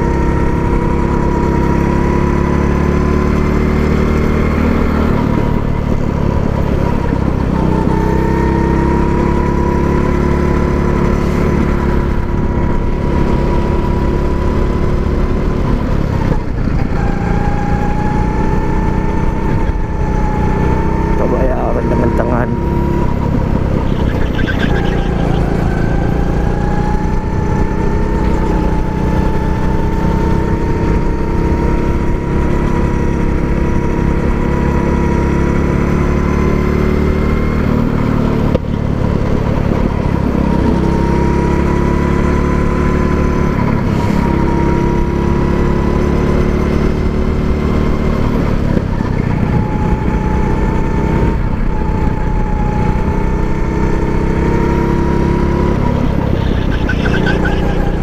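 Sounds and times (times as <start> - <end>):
go-kart engine running: 0.0 - 58.0.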